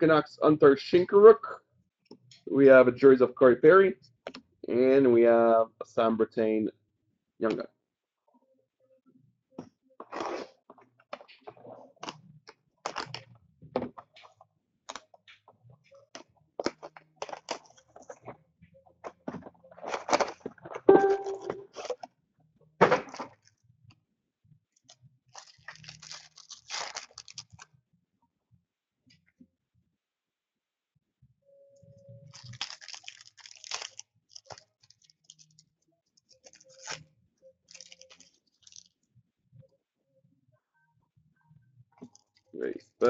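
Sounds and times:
card packs being handled: 12.8s - 13.2s, 16.1s - 18.3s, 19.7s - 22.0s, 25.3s - 27.6s, 32.3s - 35.6s, 36.2s - 37.0s, 37.7s - 38.9s
wrappers crinkling and tearing: 12.8s - 13.3s, 16.6s - 18.3s, 25.3s - 27.7s, 32.3s - 38.9s.

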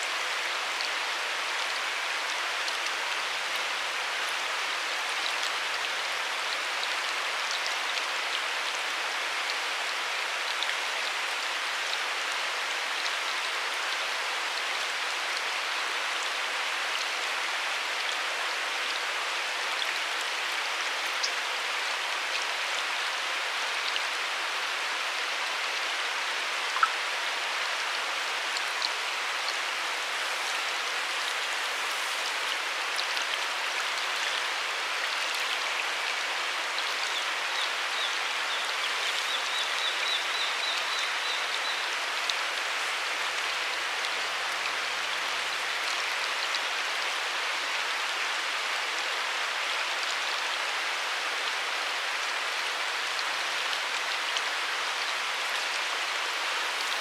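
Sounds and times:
river water over rocks: 0.0s - 57.0s.

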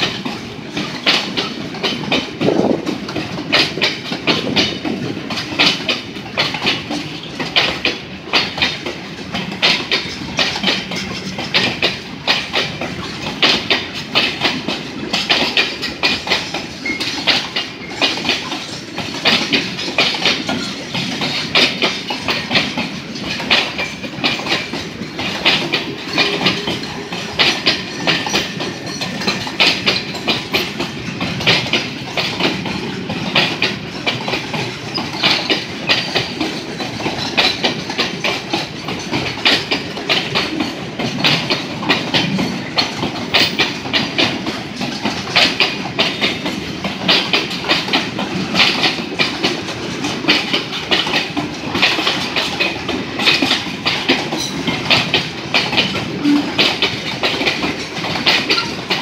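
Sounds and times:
train rumble: 0.0s - 59.0s
train wheels clacking on rail joints: 0.0s - 59.0s.

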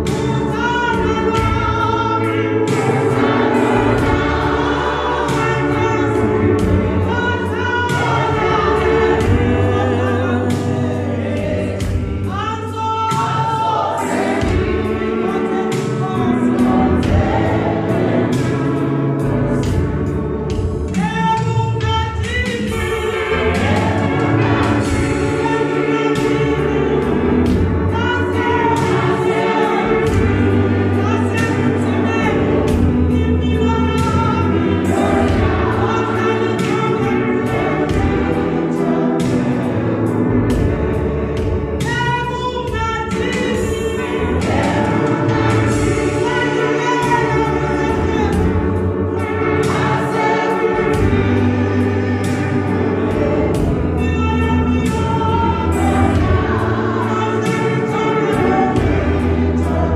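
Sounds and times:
women's choir singing gospel: 0.0s - 59.9s
sustained low bass notes: 43.9s - 59.9s.

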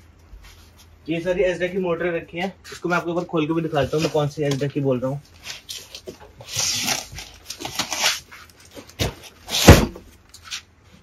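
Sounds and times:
cardboard scraping and rustling: 5.3s - 10.7s
box thumping down: 9.0s - 10.1s.

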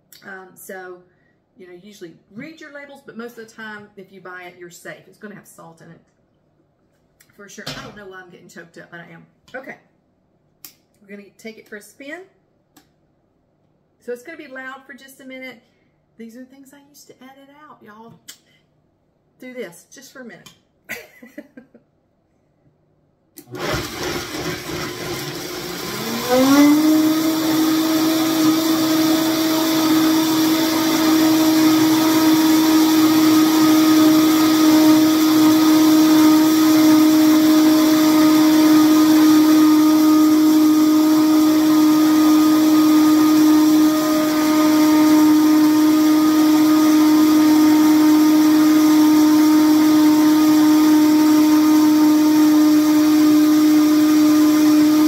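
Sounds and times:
blender motor whining: 23.4s - 55.0s.

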